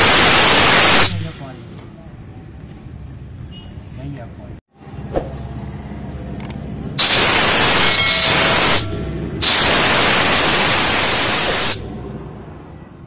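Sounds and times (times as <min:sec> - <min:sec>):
compressed air and water hissing: 0:07.0 - 0:11.9.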